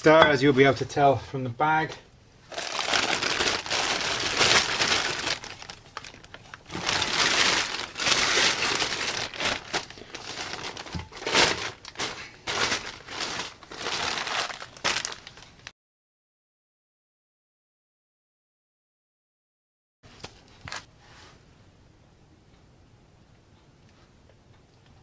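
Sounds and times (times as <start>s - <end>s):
plastic bag crinkling: 2.5s - 15.7s.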